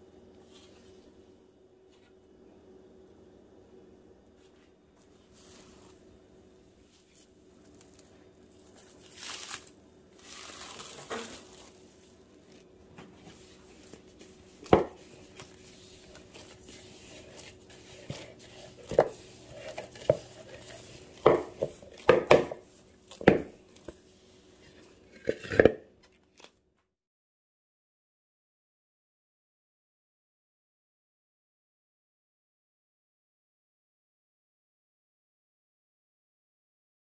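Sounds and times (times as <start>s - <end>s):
crinkly rustling: 6.8s - 24.0s.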